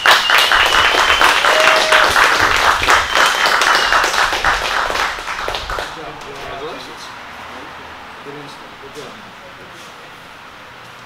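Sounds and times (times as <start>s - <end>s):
small group clapping: 0.0s - 6.6s.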